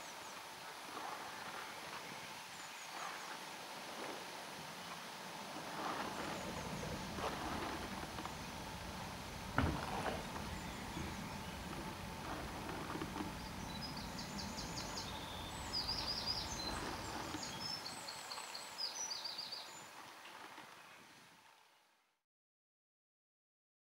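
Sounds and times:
outdoor background noise: 0.0s - 22.2s
songbird singing: 4.8s - 21.2s
thump: 9.5s - 10.5s.

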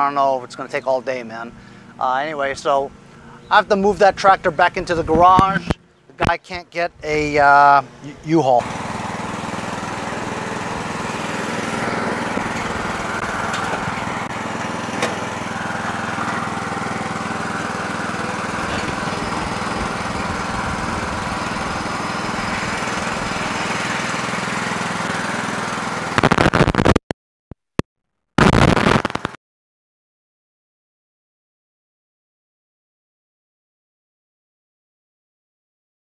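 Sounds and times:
lawn tractor engine running: 7.2s - 26.9s
loud crackles: 26.1s - 27.1s, 28.4s - 29.4s.

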